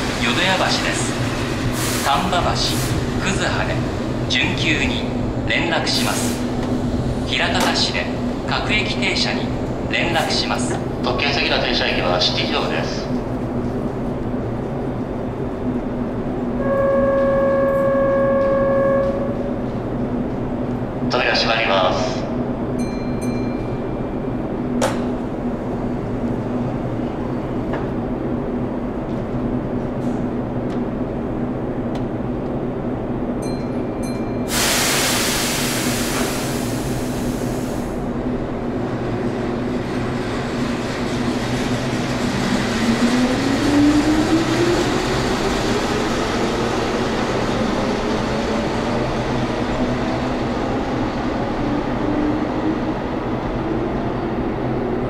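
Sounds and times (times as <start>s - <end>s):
train hum: 0.0s - 55.0s
air hiss: 34.5s - 38.0s.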